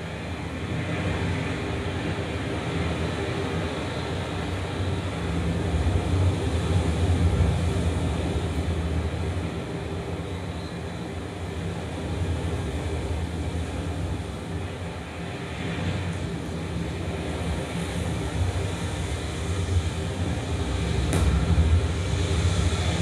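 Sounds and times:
low rumbling drone: 18.7 - 23.0.

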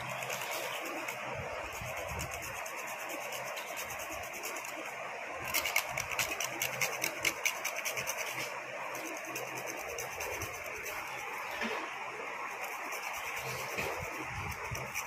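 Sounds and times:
nutmeg rasped on metal grater: 5.4 - 11.1.

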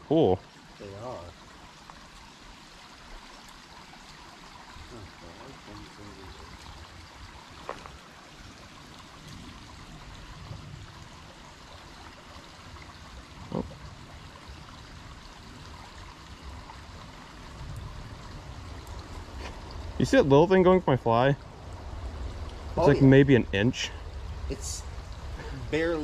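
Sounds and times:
stream trickling into pool: 0.0 - 26.0.

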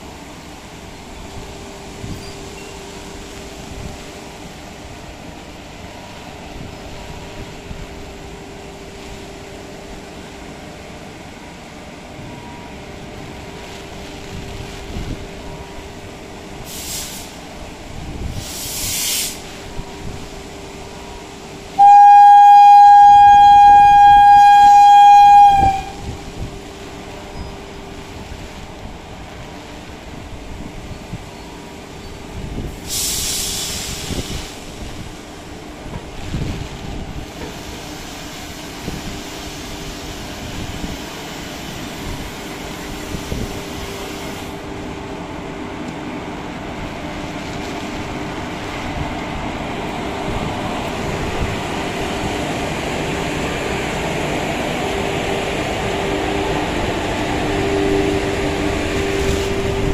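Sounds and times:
electric locomotive humming: 0.0 - 59.9
locomotive horn blast: 21.8 - 26.1.

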